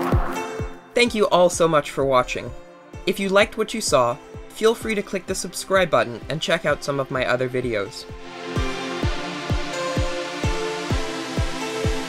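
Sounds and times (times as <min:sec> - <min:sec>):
electronic music: 0:00.0 - 0:01.7, 0:08.0 - 0:12.0
steady kick drum: 0:08.1 - 0:12.0.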